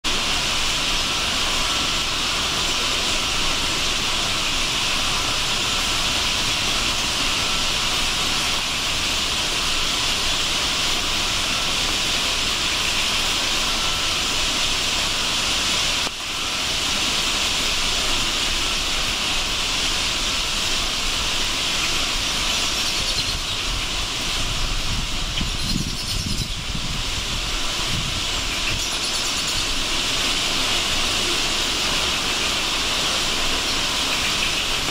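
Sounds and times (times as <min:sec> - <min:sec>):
huge flock of birds chattering: 0:21.7 - 0:23.8, 0:25.4 - 0:26.6, 0:33.3 - 0:34.9.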